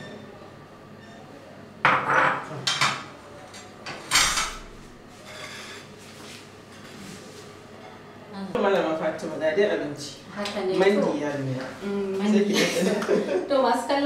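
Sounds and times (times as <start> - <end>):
dishes and utensils clinking: 1.9 - 5.9.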